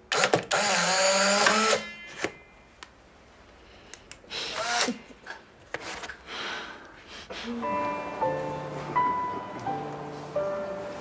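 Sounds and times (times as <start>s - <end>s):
camera motor whirring: 0.2s - 1.8s.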